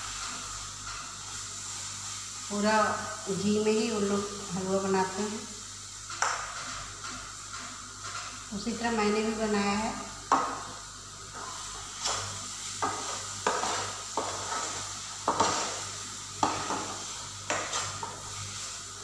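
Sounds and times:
low steady sizzle: 0.0s - 19.0s
metal spoon scraping a pan: 11.3s - 18.8s.

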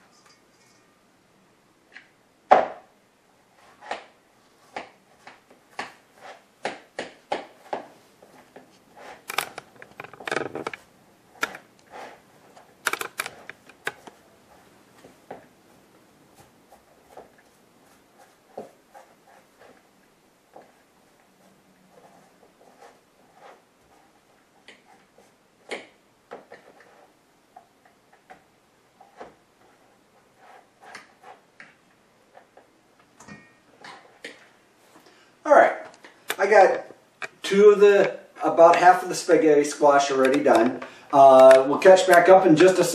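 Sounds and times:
fork scraping squash rind: 11.8s - 12.2s.

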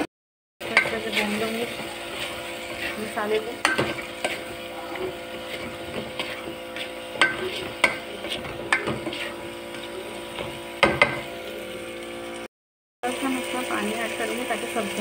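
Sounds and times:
vegetables sizzling in oil: 0.6s - 15.0s
spoon knocking against pot: 3.6s - 4.4s, 7.2s - 9.2s, 10.4s - 11.3s.

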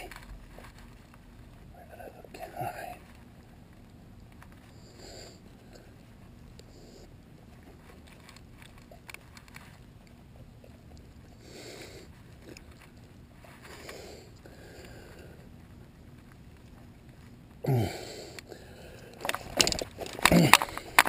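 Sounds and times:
hand handling fish clicks and rustles: 7.4s - 11.3s, 18.4s - 21.0s.

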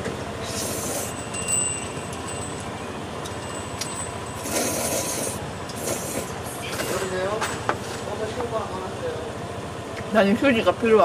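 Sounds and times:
street traffic hum: 0.0s - 11.0s
person slurping noodles: 0.4s - 1.2s, 4.4s - 6.4s
faint high ringing tone: 0.7s - 4.8s.

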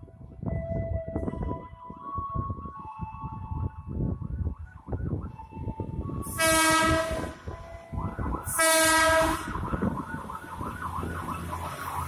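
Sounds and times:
low rumble of approaching train: 0.0s - 12.0s
locomotive horn blasts: 6.3s - 7.4s, 8.5s - 9.6s.

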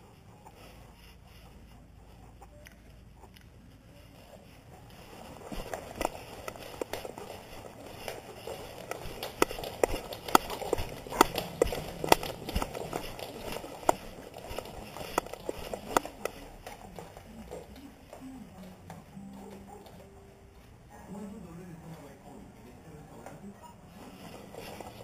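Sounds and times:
rustling: 0.0s - 20.9s, 23.2s - 25.0s
dog claws clicking on wood floor: 5.5s - 17.7s.

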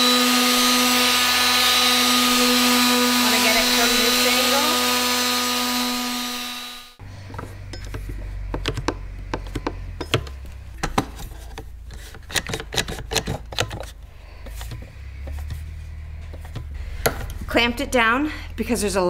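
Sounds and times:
electric palm sander on wood: 0.0s - 7.0s.

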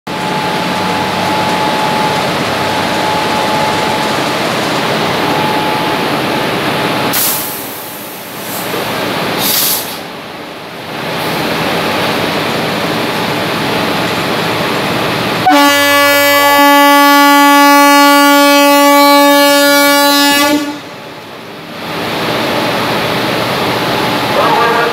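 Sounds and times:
diesel locomotive engine: 0.1s - 24.9s
train horn blast: 15.4s - 20.9s.

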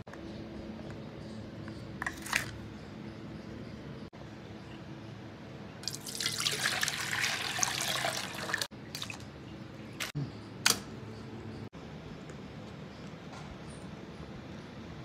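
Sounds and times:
water poured into saucepan: 5.8s - 9.1s.

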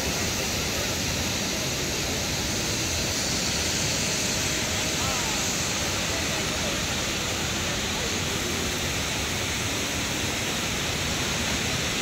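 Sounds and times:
faint distant voices: 3.2s - 9.5s.

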